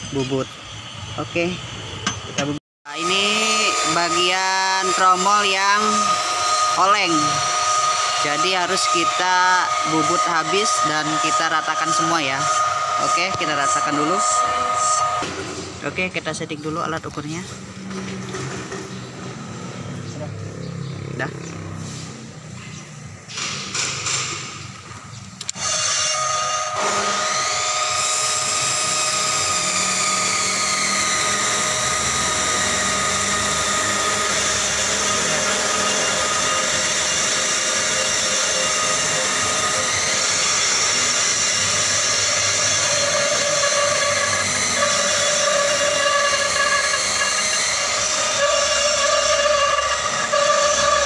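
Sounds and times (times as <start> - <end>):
brake lathe whining: 0.0 - 19.8, 25.4 - 51.0.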